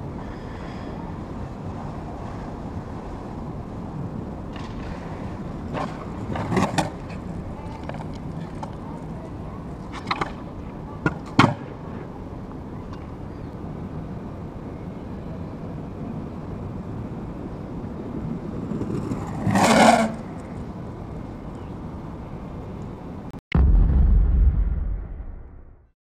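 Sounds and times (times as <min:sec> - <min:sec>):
outdoor background rumble: 0:00.0 - 0:25.9
deep boom of logo sting: 0:23.5 - 0:25.9.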